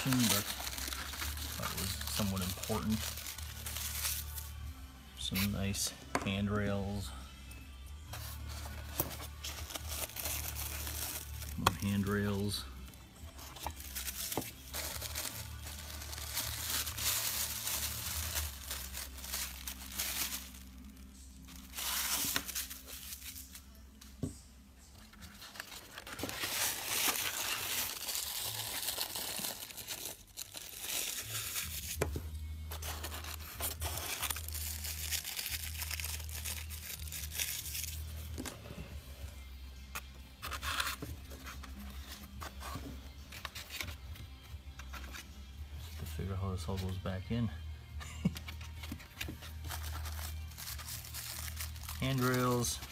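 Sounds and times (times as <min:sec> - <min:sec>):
plastic packaging crinkling and tearing: 0:00.0 - 0:04.4, 0:09.4 - 0:12.5, 0:13.4 - 0:21.0, 0:25.3 - 0:32.0, 0:32.7 - 0:38.1, 0:48.6 - 0:52.9.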